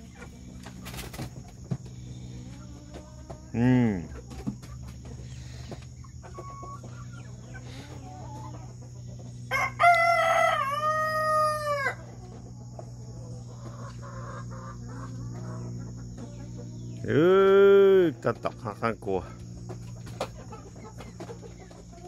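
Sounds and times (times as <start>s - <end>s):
rooster crowing: 9.4s - 12.2s.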